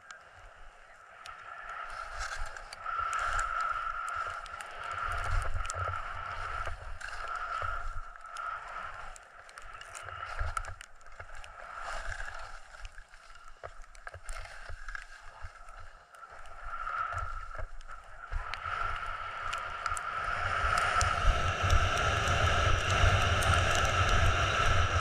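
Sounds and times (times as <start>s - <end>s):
skis scraping over snow: 0.2s - 25.0s
wind buffeting microphone: 0.8s - 9.2s, 16.5s - 25.0s.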